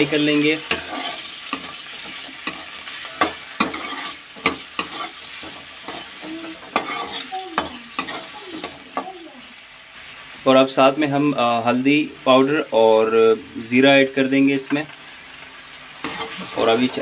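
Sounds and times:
potatoes sizzling in oil: 0.0 - 17.0
ladle scraping a metal pan: 0.6 - 6.1, 16.0 - 16.7.

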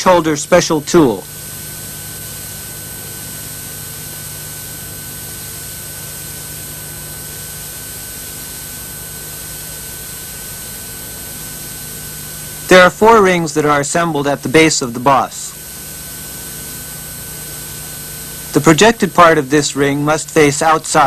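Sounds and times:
tape hiss: 0.0 - 21.0.

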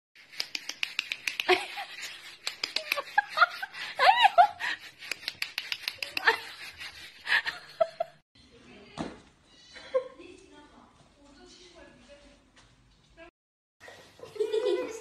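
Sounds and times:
kitten claws clicking on floor: 0.2 - 3.2, 4.8 - 6.7.

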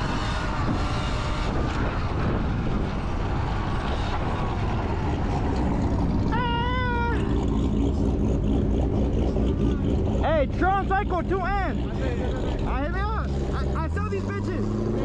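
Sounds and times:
wind noise: 0.0 - 7.2
low rumble of vehicles: 0.0 - 15.0.

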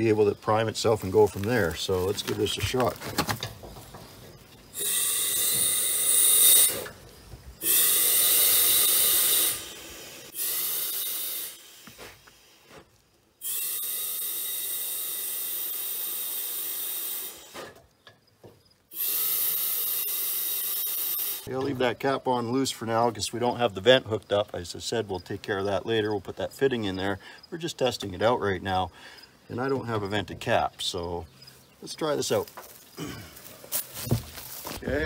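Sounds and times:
compressed air hissing: 4.7 - 17.8, 18.9 - 21.5.

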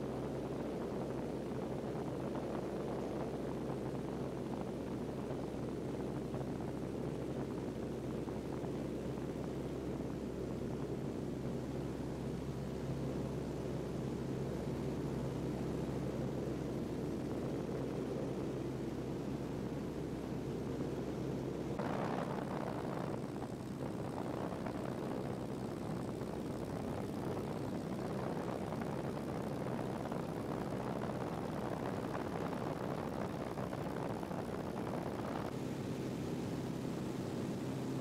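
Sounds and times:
plane engine and airflow drone: 0.0 - 38.0
broad rushing noise: 21.7 - 38.0.

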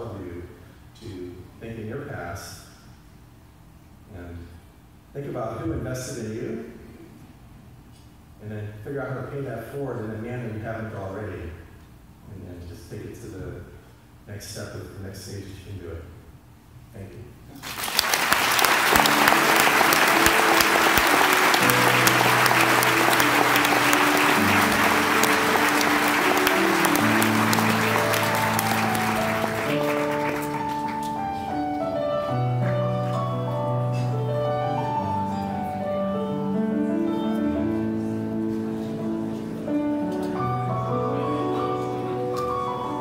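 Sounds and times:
audience applauding: 17.6 - 31.8
instrumental music with piano: 18.4 - 43.0.

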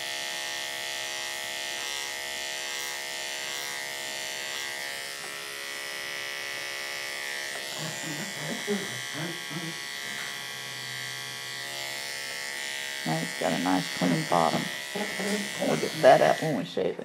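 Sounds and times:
electric clippers buzzing: 0.0 - 16.9.

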